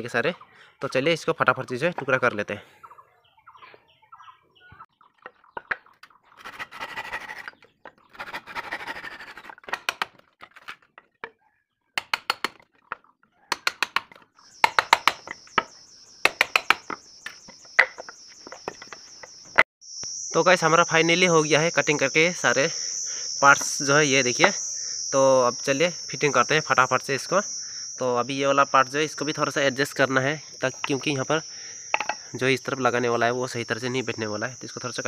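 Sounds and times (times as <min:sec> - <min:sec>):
wood scraping: 0:05.3 - 0:11.3
chisel knocking on wood: 0:12.0 - 0:12.6, 0:13.5 - 0:17.0, 0:17.6 - 0:19.3, 0:32.0 - 0:32.2
high insect buzz: 0:14.4 - 0:35.0.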